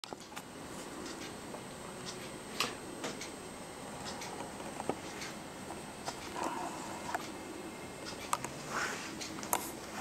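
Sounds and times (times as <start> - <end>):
faint high whine: 0.6 - 10.0.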